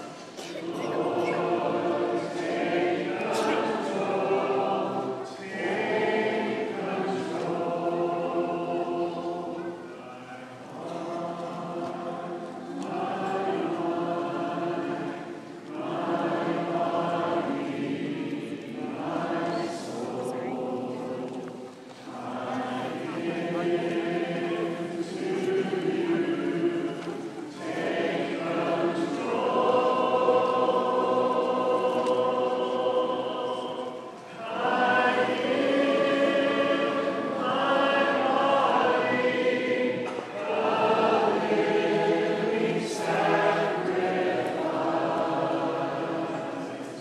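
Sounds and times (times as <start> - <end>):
congregation singing a hymn: 0.0 - 47.0.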